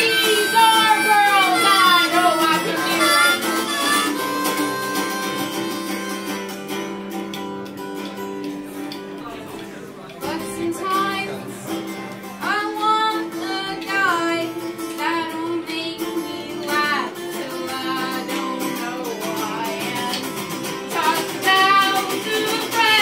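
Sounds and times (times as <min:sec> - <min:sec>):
man singing: 0:00.0 - 0:04.4
electric guitar playing: 0:00.0 - 0:23.0.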